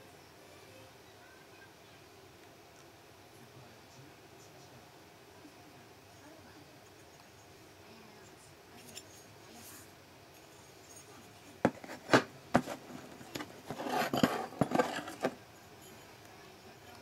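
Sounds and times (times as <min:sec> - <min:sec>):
small metal parts clinking: 0:13.0 - 0:15.4.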